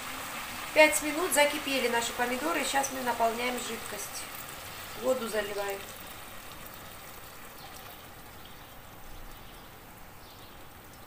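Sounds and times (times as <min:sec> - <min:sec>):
water pouring into a pan: 0:00.0 - 0:08.6.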